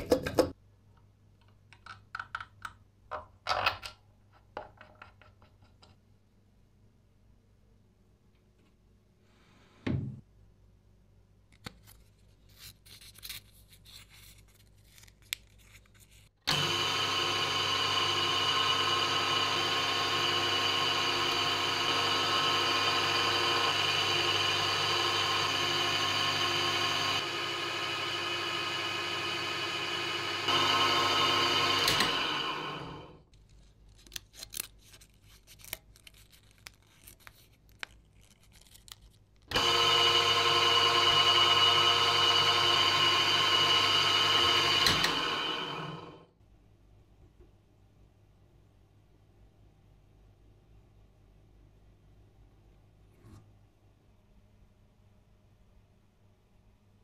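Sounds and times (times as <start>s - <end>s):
lathe motor and gear whine: 39.5s - 46.2s.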